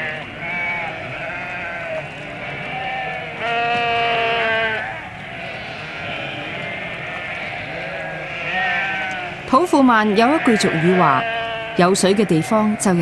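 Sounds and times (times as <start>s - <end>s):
sheep and goats bleating: 0.0s - 13.0s.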